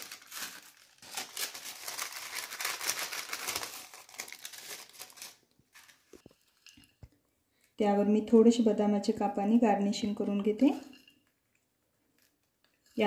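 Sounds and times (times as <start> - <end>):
thin paper crinkling: 0.0 - 6.8.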